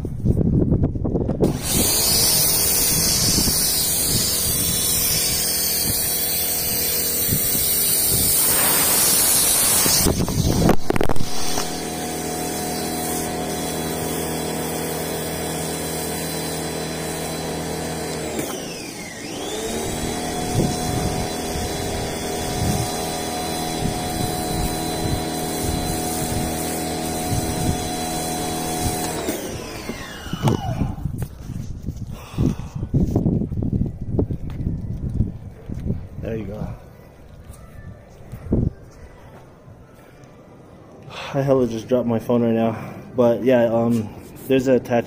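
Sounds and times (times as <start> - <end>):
pressure washer motor hum: 1.4 - 31.1
pressure washer spray hissing: 1.6 - 18.4, 19.6 - 30.3.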